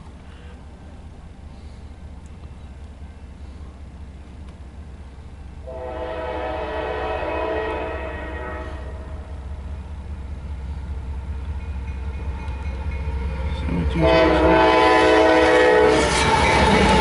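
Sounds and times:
locomotive air horn blast: 5.6s - 9.3s, 14.0s - 16.1s.

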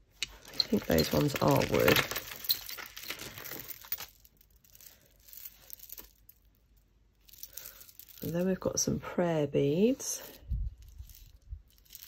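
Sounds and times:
beads clicking: 0.0s - 8.4s, 10.2s - 12.0s
plastic bag crinkling: 0.3s - 6.4s, 7.2s - 8.6s.

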